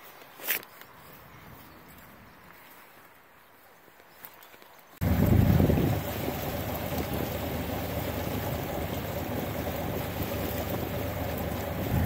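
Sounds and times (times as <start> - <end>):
water rushing along a hull: 5.0 - 12.0.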